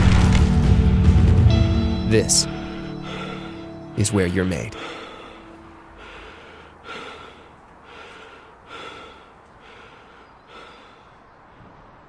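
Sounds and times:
person breathing hard: 3.0s - 3.8s, 4.8s - 11.2s.

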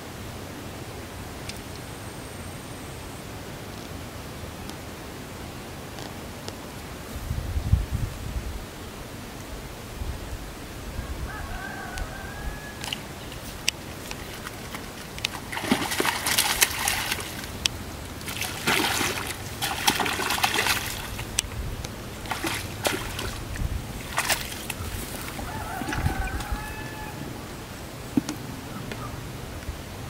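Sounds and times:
fish thrashing and splashing: 12.9s - 27.1s.

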